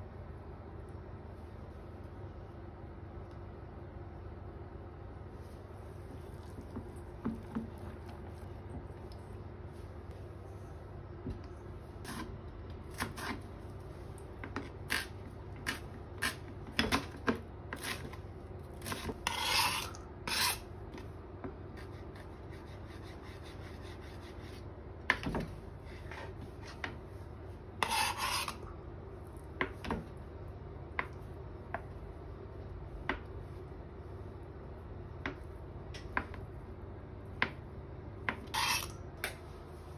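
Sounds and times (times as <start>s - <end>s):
knife rasping scrapes on board: 18.8s - 20.6s, 27.8s - 28.6s, 38.5s - 38.9s.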